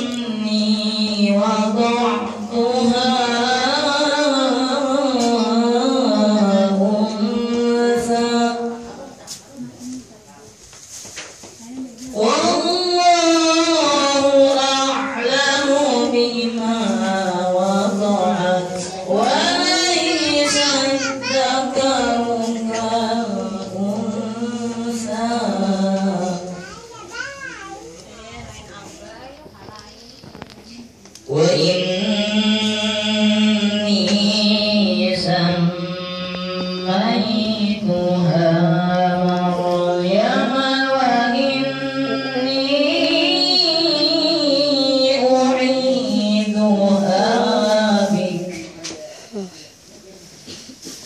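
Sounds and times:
person chanting through a microphone: 0.0 - 10.4, 11.6 - 51.0.

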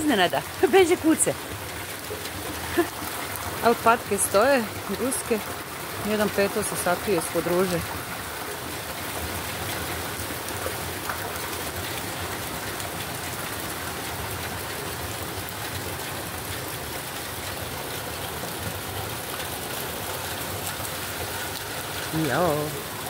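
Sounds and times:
heavy rain hissing: 2.3 - 8.7.

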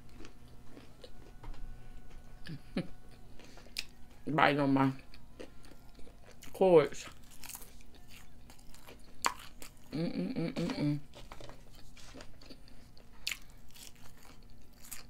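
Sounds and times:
chewing fries: 0.0 - 2.6, 4.9 - 15.0
person humming: 1.1 - 3.9, 9.9 - 11.1.

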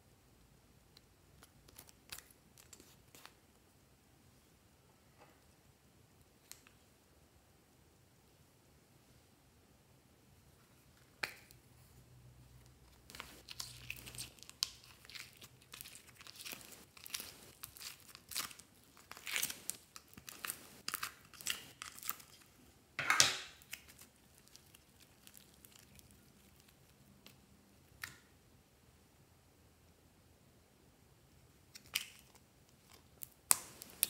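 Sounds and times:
foam clay crackling: 12.7 - 22.5, 33.2 - 34.0.

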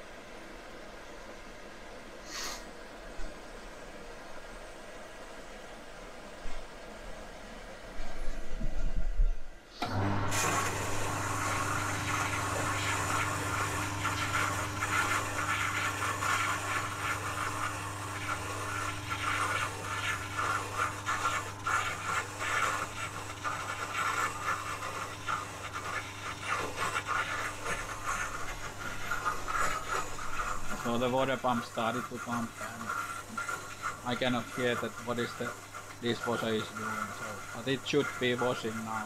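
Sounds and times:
electric water pump running: 9.8 - 39.0.

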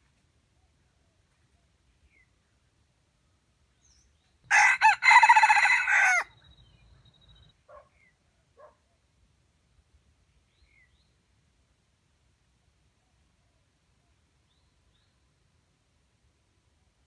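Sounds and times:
rooster crowing: 4.5 - 6.4.

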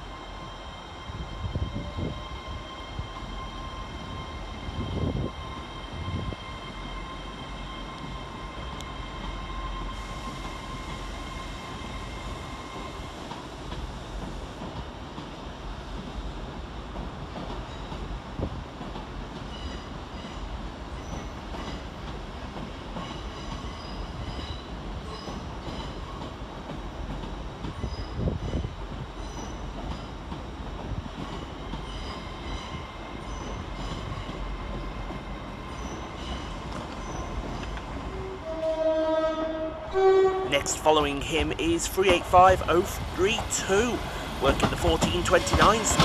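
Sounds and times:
train rumble: 0.0 - 46.0
train wheels squealing: 0.2 - 13.4, 17.6 - 18.1, 19.5 - 21.8, 23.0 - 26.2, 27.7 - 30.2, 31.2 - 37.9.

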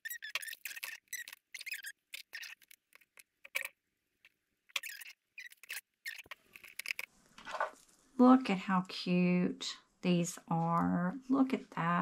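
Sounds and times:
squeaky rustling and scraping: 0.0 - 8.0.

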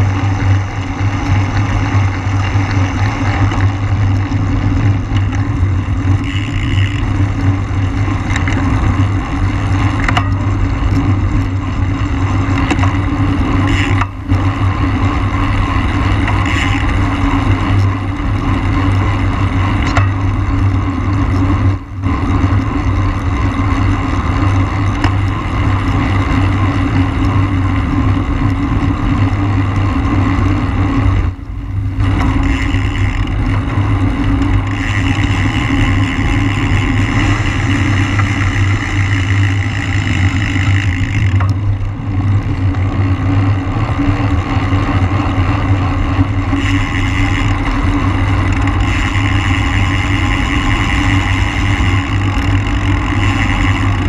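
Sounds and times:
road noise: 0.0 - 54.0.

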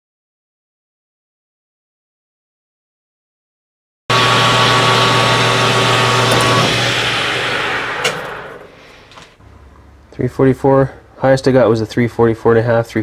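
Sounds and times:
drill bit cutting tone: 4.1 - 9.0
lathe machine hum: 4.1 - 9.2.

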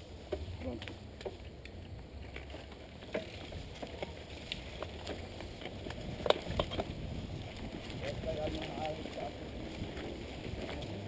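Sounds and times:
bike tyres rumbling: 0.0 - 11.0
bike rattling and knocking: 0.2 - 11.0.

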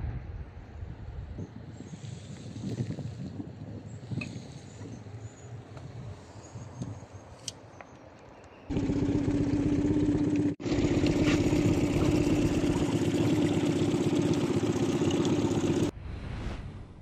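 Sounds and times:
outboard motor running: 8.7 - 15.9.

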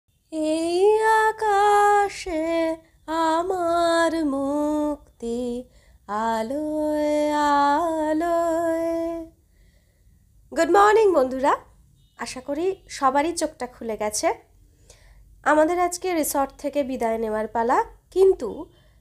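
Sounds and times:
woman singing slow melody: 0.3 - 9.4.

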